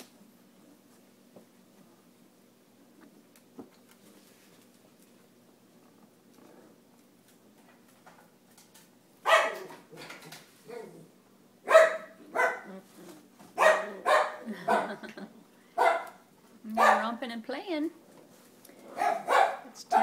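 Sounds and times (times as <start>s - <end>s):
dog barking from another room: 9.2s - 9.9s, 10.6s - 12.9s, 13.5s - 15.0s, 15.7s - 17.2s, 18.8s - 20.0s.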